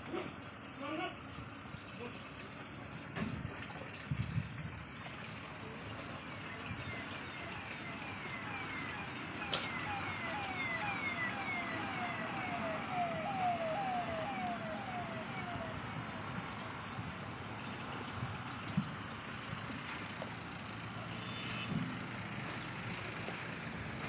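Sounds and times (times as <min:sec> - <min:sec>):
distant siren sweeping: 0:05.3 - 0:24.0.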